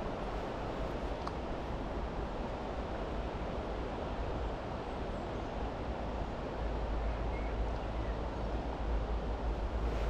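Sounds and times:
wind rumbling on microphone: 9.1s - 10.0s.

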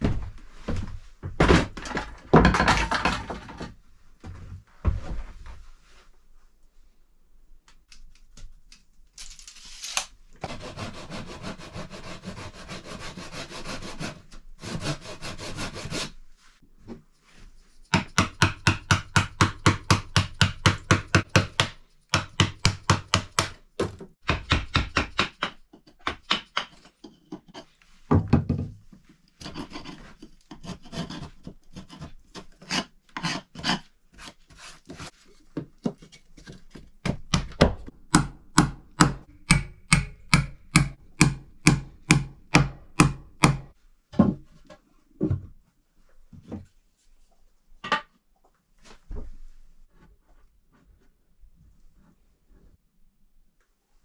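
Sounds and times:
hand saw cutting wood: 10.4s - 16.2s
rasping on wood: 10.4s - 16.2s
hatchet striking wood: 17.9s - 23.6s, 24.2s - 26.8s, 37.0s - 43.7s.

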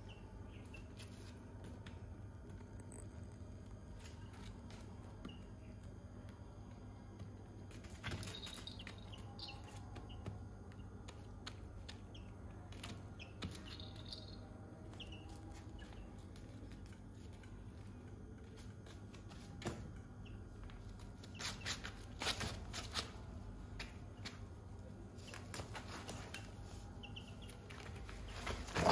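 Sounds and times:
chicks pecking and stepping on tarp: 0.0s - 2.6s, 3.6s - 6.2s, 7.1s - 28.9s
low steady hum: 0.0s - 28.9s
faint high peeps: 8.0s - 10.9s, 13.2s - 16.4s.

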